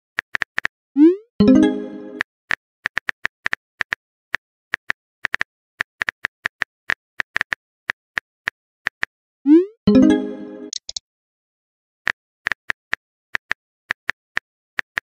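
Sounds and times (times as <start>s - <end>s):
phone keyboard typing clicks: 10.7s - 11.0s.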